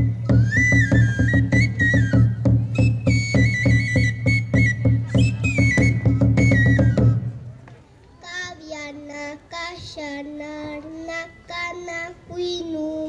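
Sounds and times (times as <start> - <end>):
high held flute tone: 0.0 - 7.5
drum beating: 0.0 - 7.7
child singing a chant: 8.2 - 13.0.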